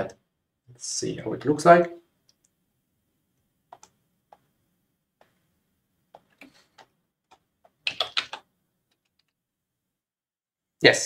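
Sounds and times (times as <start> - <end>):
computer mouse clicks: 3.7 - 4.5.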